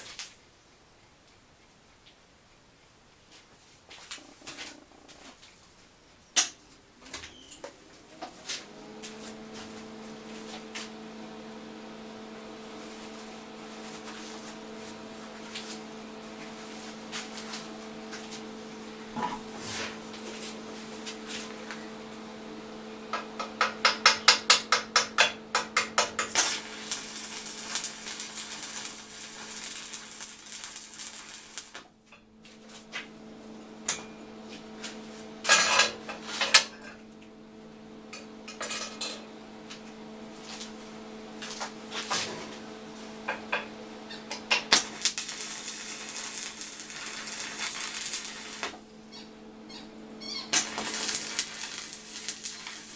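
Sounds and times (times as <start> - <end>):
electrical hum: 0.0 - 52.9
crackling hiss: 26.3 - 31.9, 44.7 - 48.9, 50.4 - 52.9.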